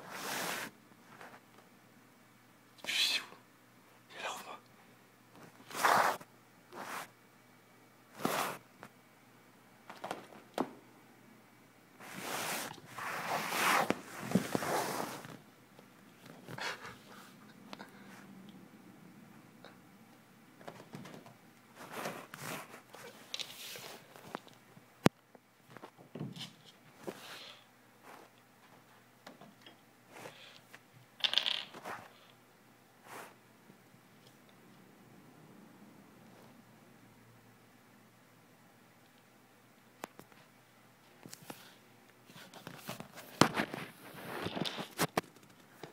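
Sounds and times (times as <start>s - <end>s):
cat scratching and rustling fabric: 0.0s - 1.4s, 5.4s - 7.2s, 8.1s - 8.6s, 12.0s - 15.4s, 20.7s - 24.4s, 33.0s - 33.4s.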